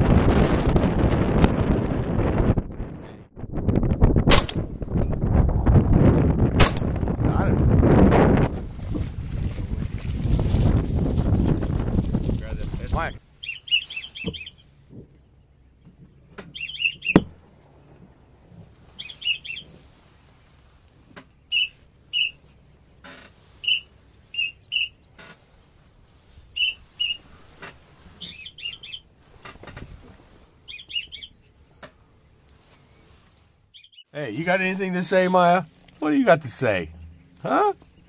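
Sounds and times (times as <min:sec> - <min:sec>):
whistled duck calls: 0:13.4 - 0:14.6, 0:16.5 - 0:17.2, 0:19.0 - 0:19.7, 0:21.4 - 0:22.4, 0:23.6 - 0:25.0, 0:26.5 - 0:27.3, 0:28.2 - 0:29.1, 0:30.7 - 0:31.4.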